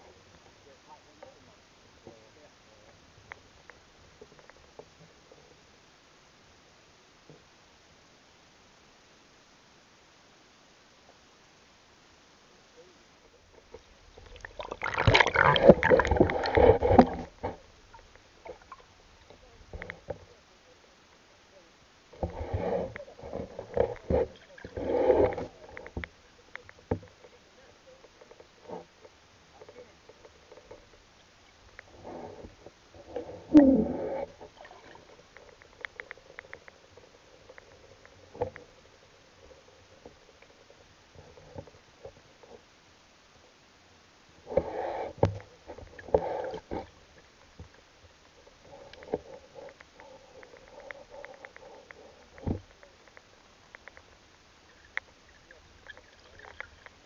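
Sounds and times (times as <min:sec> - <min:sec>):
faint steady hum: 0:00.0 - 0:57.0
underwater ticks: 0:02.8 - 0:05.6, 0:13.5 - 0:20.5, 0:22.1 - 0:33.3, 0:34.2 - 0:42.7, 0:44.5 - 0:57.0
muffled water sloshing and knocking: 0:13.6 - 0:20.4.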